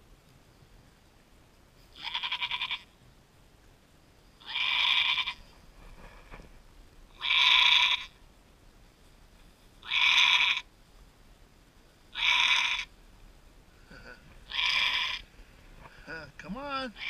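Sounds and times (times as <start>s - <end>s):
goat bleating: 2.0s - 2.9s, 4.4s - 5.4s, 7.1s - 8.2s, 9.8s - 10.7s, 12.2s - 12.9s, 13.9s - 15.2s.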